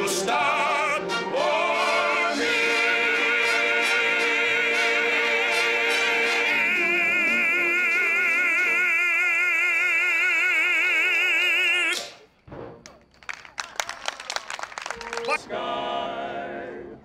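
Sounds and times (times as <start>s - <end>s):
person singing with vibrato: 0.0s - 12.1s.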